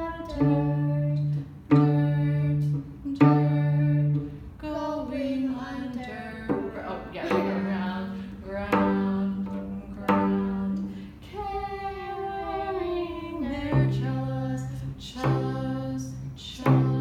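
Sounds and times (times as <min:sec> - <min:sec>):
cello plucked pizzicato: 0:00.0 - 0:17.0
person singing sliding note: 0:04.8 - 0:17.0.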